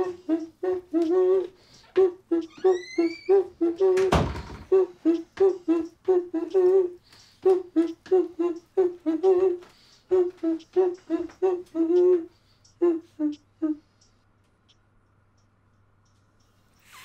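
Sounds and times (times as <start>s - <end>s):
man humming: 0.0s - 14.0s.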